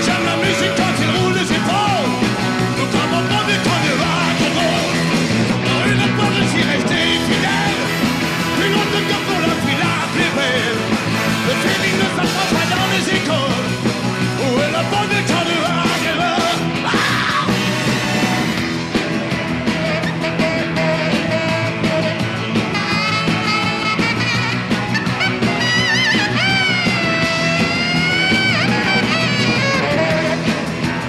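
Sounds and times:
man singing into microphone: 0.0 - 13.8, 14.4 - 17.7
rock band playing: 0.0 - 31.0.

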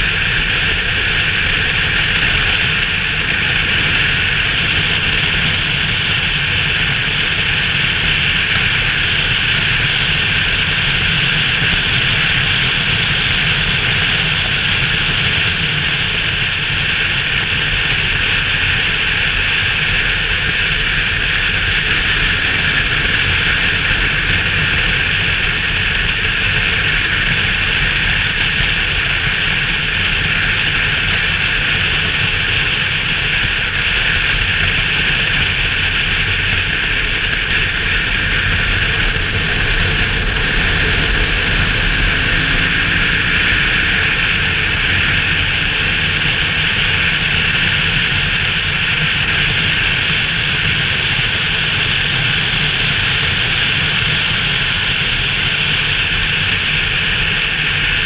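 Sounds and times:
motorcycle engine running: 0.0 - 58.0
wind rushing over a helmet: 18.2 - 48.5.

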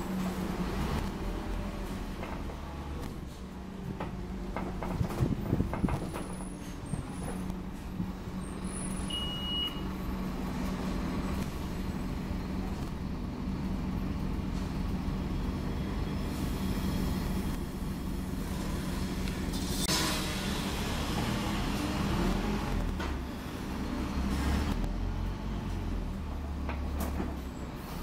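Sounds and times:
bus diesel engine drone: 0.0 - 28.0
road noise: 0.0 - 28.0
brief high beep: 9.1 - 9.8.

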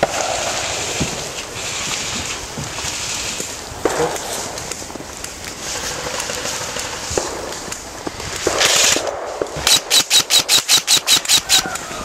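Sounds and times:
airsoft rifle rapid shots: 8.4 - 11.8.

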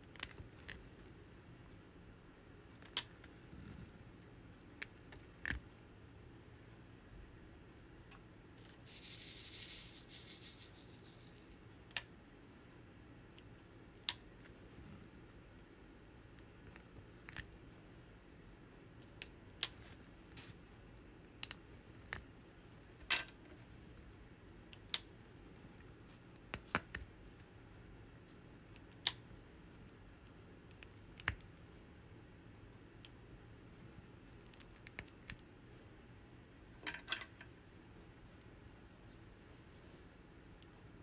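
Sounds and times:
small sharp clicks and taps: 30.7 - 31.6.

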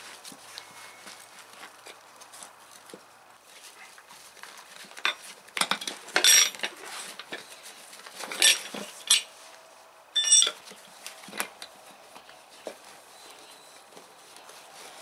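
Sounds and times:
tire lever clinking on metal rim: 10.2 - 10.6.

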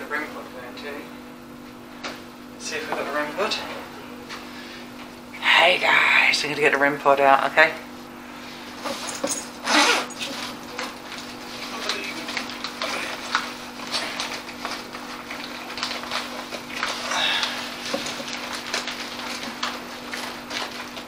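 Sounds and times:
steady low hum: 0.0 - 21.0
rustling in a bag: 8.5 - 21.0.

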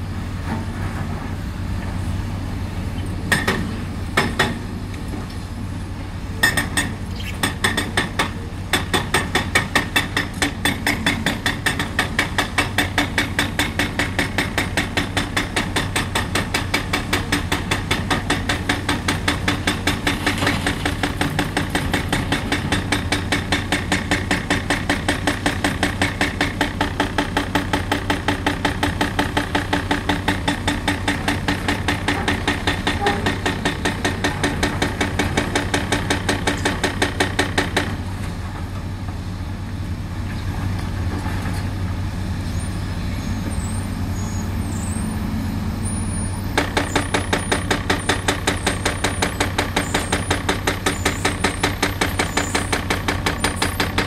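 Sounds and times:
hydraulic hammer pounding concrete: 3.3 - 4.6, 6.4 - 38.1, 46.6 - 54.0.

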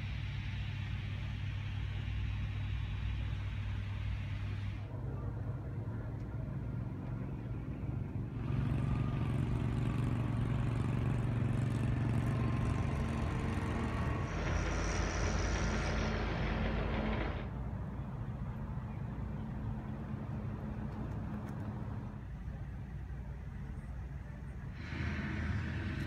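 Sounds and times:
mechanical running hum: 0.0 - 17.6, 23.6 - 26.0
loud rushing noise: 12.8 - 17.6.

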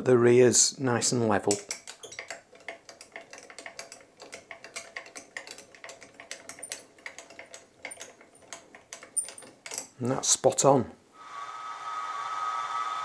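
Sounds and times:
milling machine table clicking: 1.4 - 10.0.

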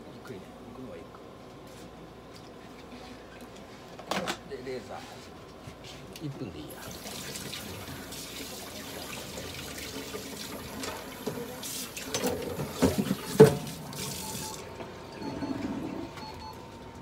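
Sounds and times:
tap water running: 6.7 - 14.6.

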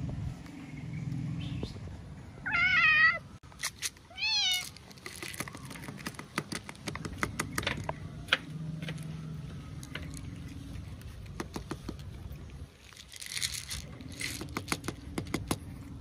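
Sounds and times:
cat meowing: 2.4 - 3.2
cats crunching dry kibble: 3.5 - 6.7, 9.7 - 15.9.

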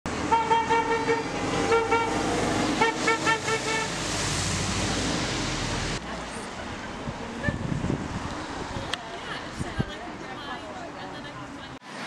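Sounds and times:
traffic noise: 0.1 - 12.0
car horn honking: 0.3 - 2.2, 2.8 - 3.9.

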